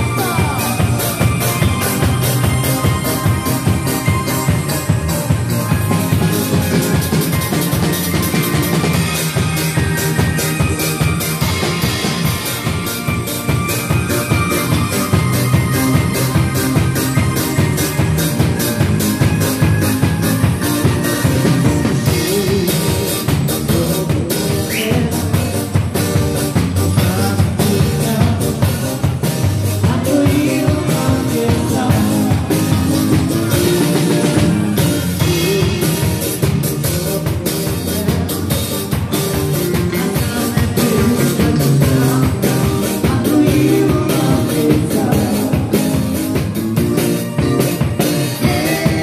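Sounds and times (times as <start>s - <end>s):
person singing: 0.0s - 4.9s, 21.3s - 46.4s, 48.0s - 49.0s
drum kit beat: 0.0s - 49.0s
electric guitar: 0.0s - 49.0s.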